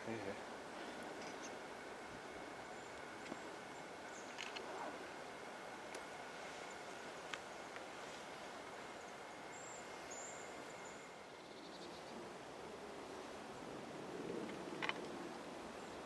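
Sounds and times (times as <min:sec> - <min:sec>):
steady outdoor hiss: 0:00.0 - 0:16.0
light ticks: 0:07.3 - 0:07.9.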